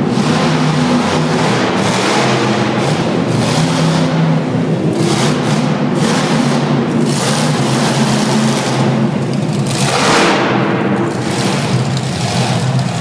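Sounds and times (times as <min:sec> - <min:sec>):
monster truck engine roaring: 0:00.0 - 0:13.0.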